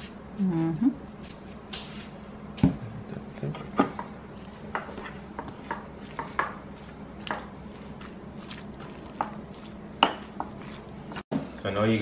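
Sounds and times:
metal spoon clinking ceramic bowl: 0:10.0 - 0:10.8.

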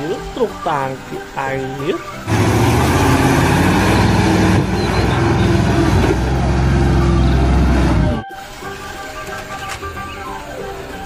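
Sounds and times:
loud noisy rumble: 0:02.3 - 0:08.2
truck diesel engine under load: 0:02.3 - 0:08.2.

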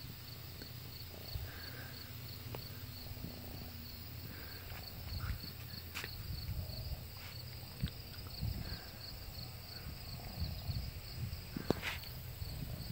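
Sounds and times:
insects chirping: 0:00.0 - 0:12.9
low microphone rumble: 0:02.3 - 0:12.9.

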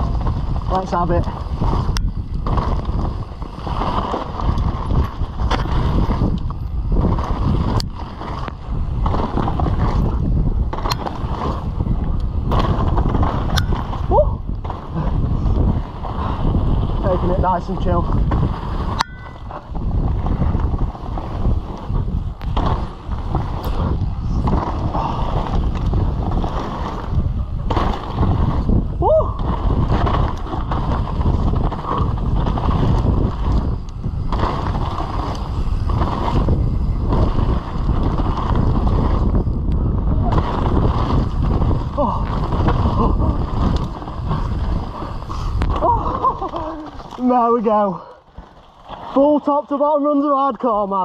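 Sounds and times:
bike knocks and rattles: 0:00.0 - 0:47.4
bike tyres rolling on dirt: 0:00.0 - 0:51.0
wind buffeting microphone: 0:00.0 - 0:51.0
sharp ringing clack: 0:19.0 - 0:19.6.

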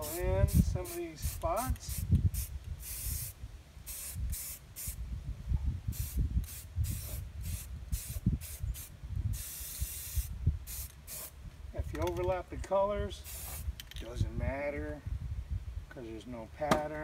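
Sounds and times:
spray paint can hissing: 0:00.0 - 0:05.0, 0:05.9 - 0:11.4, 0:13.2 - 0:13.7.

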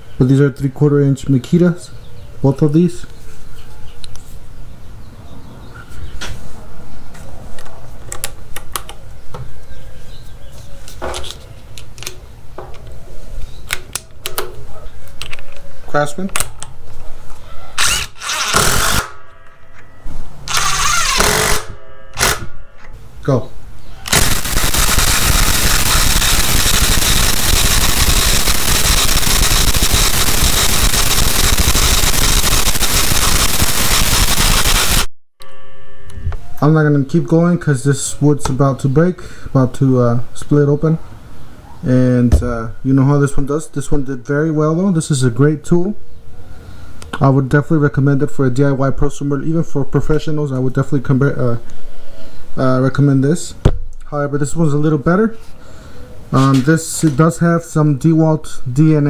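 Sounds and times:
impact drivers rattling: 0:17.8 - 0:19.2, 0:20.5 - 0:22.5.

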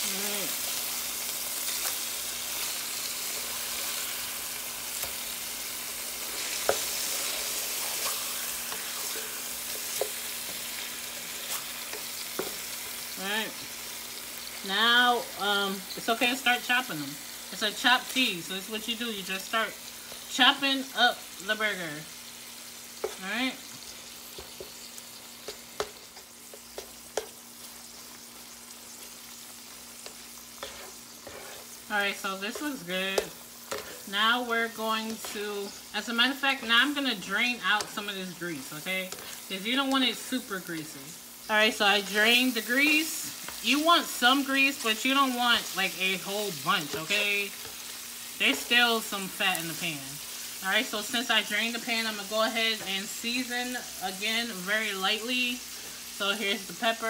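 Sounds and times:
burgers sizzling in frying pan: 0:00.0 - 0:57.0
spatula chopping and scraping: 0:06.2 - 0:13.1, 0:23.0 - 0:34.1, 0:46.4 - 0:49.6.

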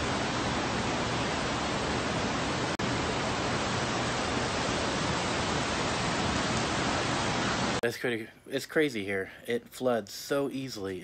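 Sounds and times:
floodwater rushing: 0:00.0 - 0:07.8.

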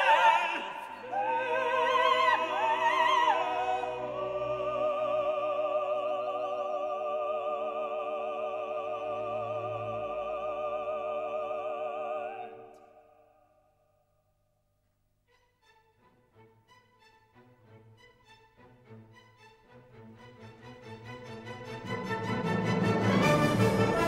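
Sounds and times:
operatic voice singing: 0:00.0 - 0:12.8
orchestral chords: 0:19.9 - 0:24.0.

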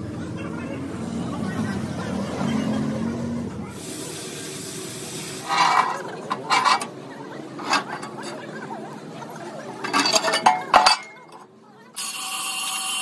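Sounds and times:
steel bar clanking on steel plate: 0:05.5 - 0:06.9, 0:07.6 - 0:08.4, 0:09.8 - 0:11.4.

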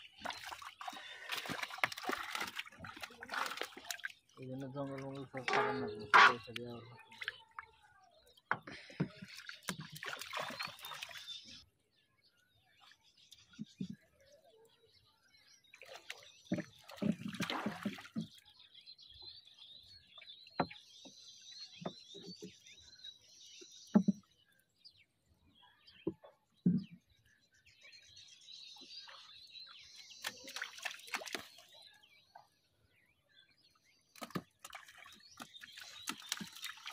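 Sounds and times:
water splashing and dripping: 0:00.0 - 0:11.7, 0:15.7 - 0:18.4, 0:30.0 - 0:32.0, 0:34.1 - 0:36.9
bird chirping: 0:03.6 - 0:17.4, 0:18.0 - 0:36.9.

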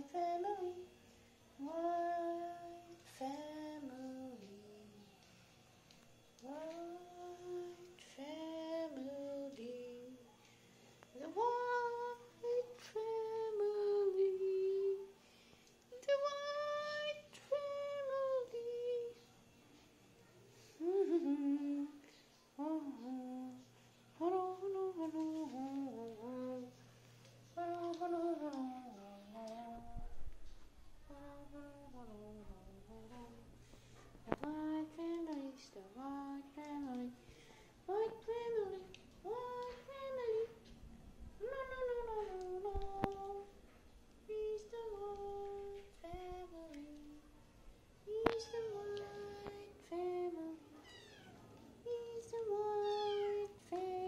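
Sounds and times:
person humming a tune: 0:00.0 - 0:05.3, 0:05.9 - 0:10.4, 0:11.1 - 0:15.2, 0:15.9 - 0:19.2, 0:20.7 - 0:26.8, 0:27.5 - 0:30.2, 0:31.0 - 0:33.5, 0:37.9 - 0:40.6, 0:41.4 - 0:43.5, 0:48.1 - 0:50.7, 0:51.8 - 0:54.0.

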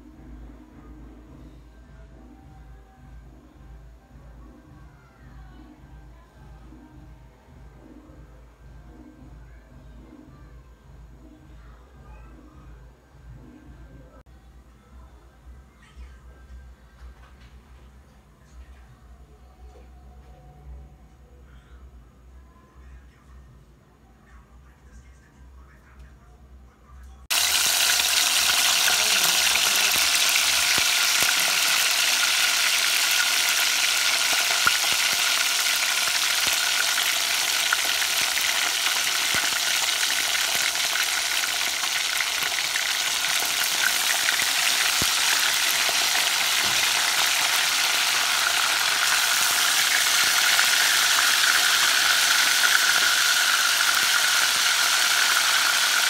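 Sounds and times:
fish sizzling in hot oil: 0:27.3 - 0:56.0.

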